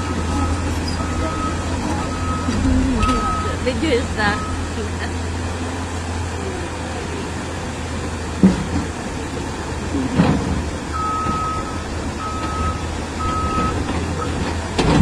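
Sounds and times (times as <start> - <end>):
travel alarm beeping: 0.0 - 5.2, 10.9 - 14.4
excavator diesel engine running: 0.0 - 15.0.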